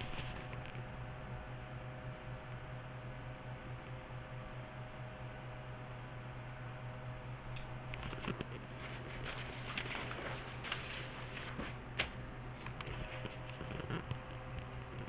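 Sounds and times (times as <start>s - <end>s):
paper rustling and crinkling: 0.0s - 0.6s, 8.0s - 14.3s
low steady hum: 0.0s - 15.0s.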